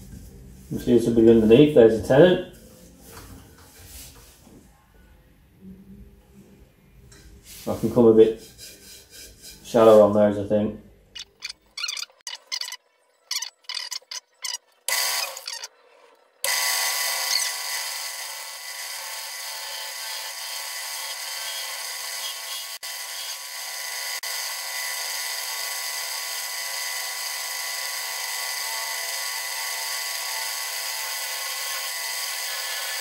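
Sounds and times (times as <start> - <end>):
wood lathe running: 14.9 - 15.6, 16.4 - 33.0.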